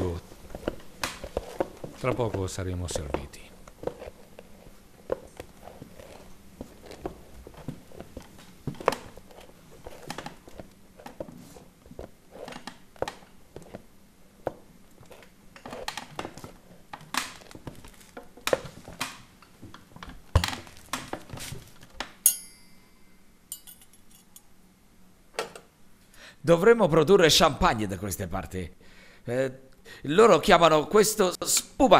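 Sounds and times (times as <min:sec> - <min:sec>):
short high ringing: 0:22.2 - 0:23.8.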